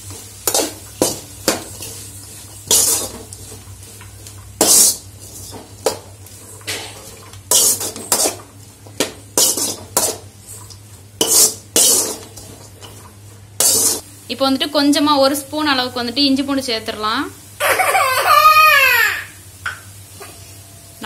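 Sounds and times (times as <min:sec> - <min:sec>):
metal spatula scraping vegetables: 0:00.0 - 0:08.7, 0:09.3 - 0:14.0.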